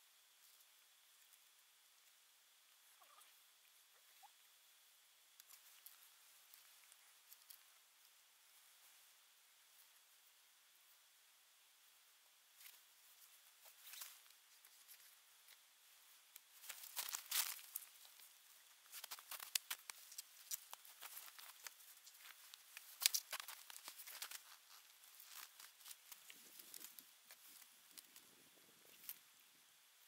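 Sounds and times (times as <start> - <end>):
wooden sticks rustling and crackling: 12.6 - 29.4.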